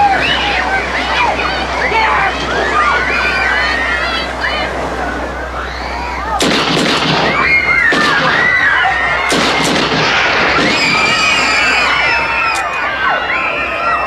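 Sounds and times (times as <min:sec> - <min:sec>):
crowd screaming and shouting: 0:00.0 - 0:14.0
revolver gunshots: 0:06.4 - 0:11.1.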